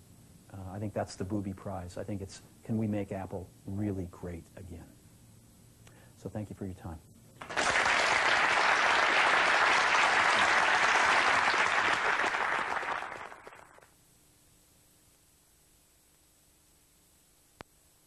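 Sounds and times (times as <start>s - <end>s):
faint hiss: 0.0s - 18.0s
room full of people applauding: 7.4s - 13.9s.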